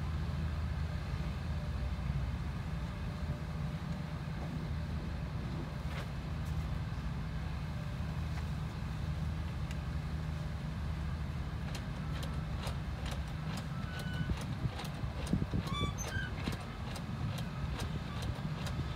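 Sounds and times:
tractor engine idling: 10.3s - 18.9s.

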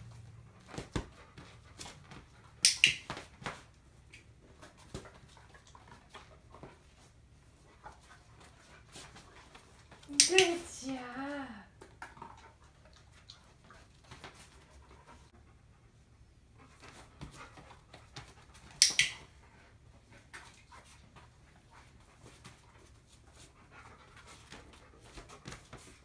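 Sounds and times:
dog panting: 4.5s - 10.1s, 10.8s - 26.0s.

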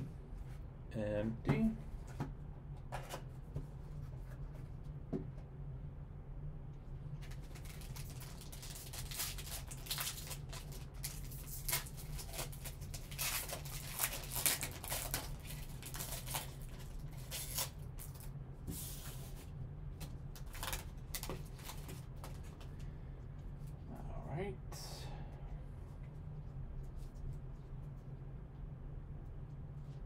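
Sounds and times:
foil wrapper crinkling and tearing: 7.2s - 18.3s, 20.3s - 22.0s.

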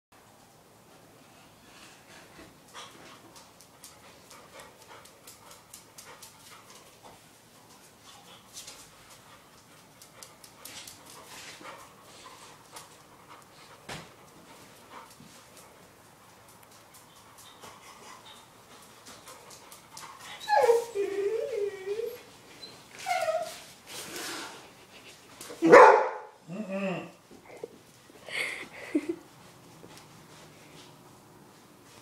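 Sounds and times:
dog panting: 2.1s - 21.0s.

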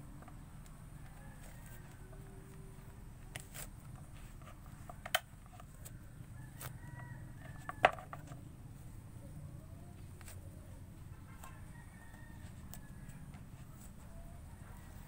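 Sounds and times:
hands peeling fruit pith: 0.0s - 8.5s
steady low hum: 0.0s - 15.0s.

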